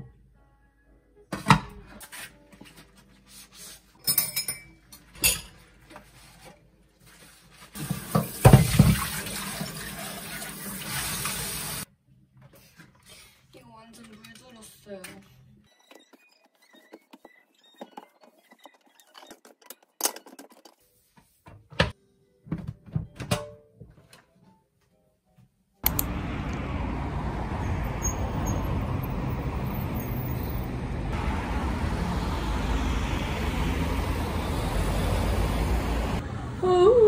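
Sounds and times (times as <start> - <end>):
outdoor street noise: 25.8 - 37.0.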